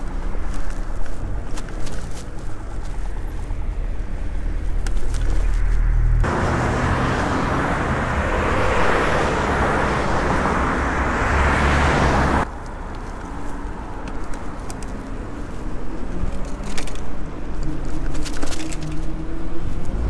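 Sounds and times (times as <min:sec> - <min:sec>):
bicycle rattling over paving: 0:00.0 - 0:05.8, 0:12.9 - 0:19.7
passing cars rushing: 0:03.4 - 0:12.6.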